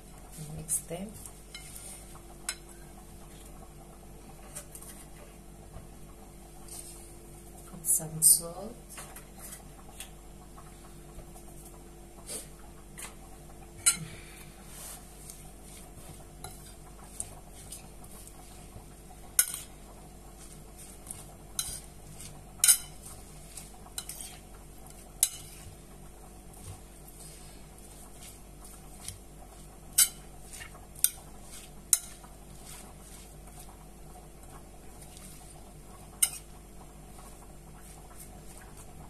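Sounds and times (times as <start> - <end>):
faint steady hum: 0.0 - 39.0
cutlery clinking against a bowl: 19.4 - 19.7, 22.6 - 23.0, 25.2 - 25.6, 29.9 - 32.2, 36.2 - 36.4.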